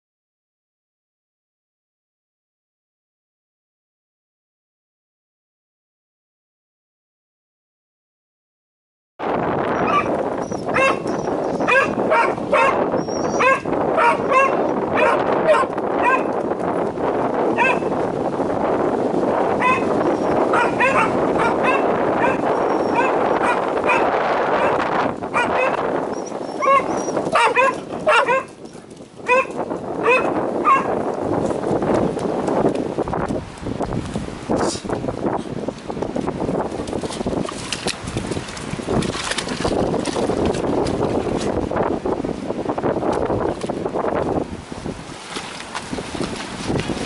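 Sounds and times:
dog barking in high-pitched yelps: 9.7s - 16.3s, 17.6s - 17.9s, 19.6s - 28.6s, 29.2s - 31.0s.

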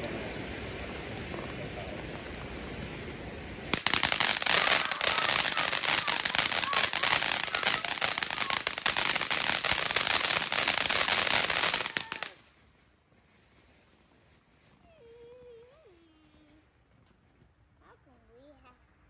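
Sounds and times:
fireworks crackling: 0.0s - 12.9s.

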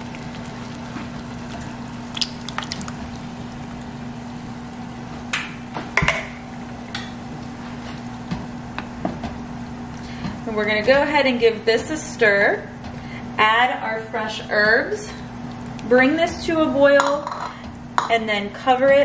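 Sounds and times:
steady low hum: 0.0s - 19.0s
tomatoes plopping into liquid: 0.2s - 4.0s.

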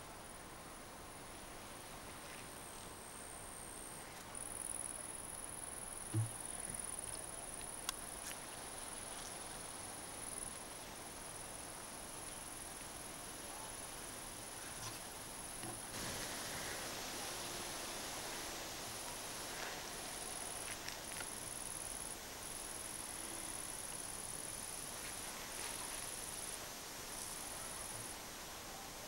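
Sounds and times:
low thump: 6.1s - 6.4s.

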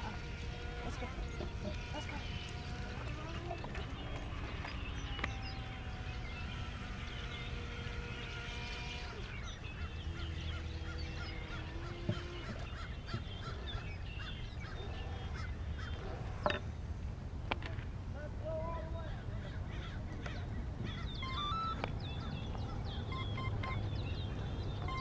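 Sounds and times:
steady hum: 0.0s - 25.0s
waterfowl chirping and honking: 4.0s - 16.0s, 19.4s - 24.1s.

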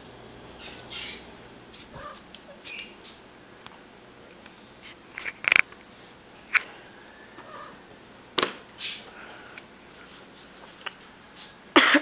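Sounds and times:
soft scrapes and rustles: 9.9s - 11.6s.

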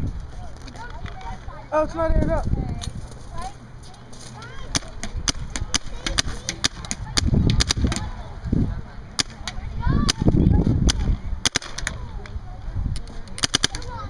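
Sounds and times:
paintball marker shots: 4.7s - 8.1s, 9.2s - 12.0s, 13.4s - 13.9s.

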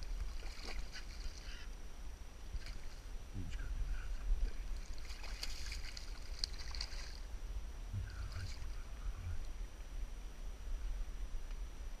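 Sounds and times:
fish splashing in shallow water: 0.0s - 1.7s, 2.4s - 3.1s, 4.5s - 7.3s
steady low rumble: 0.0s - 12.0s.

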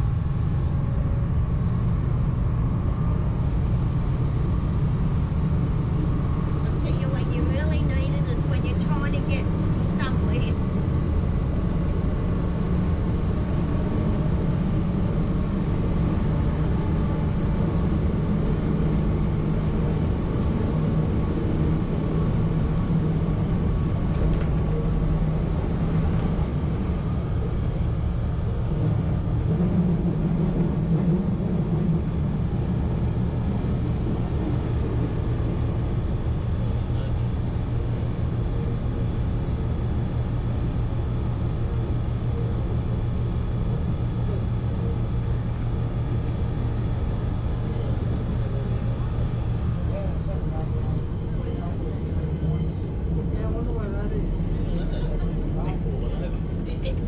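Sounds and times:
railmotor engine droning: 0.0s - 57.0s.

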